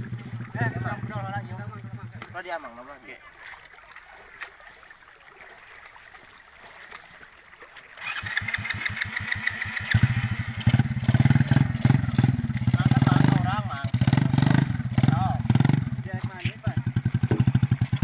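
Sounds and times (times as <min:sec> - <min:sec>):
motorcycle engine starting: 0:00.0 - 0:02.7, 0:08.0 - 0:18.0.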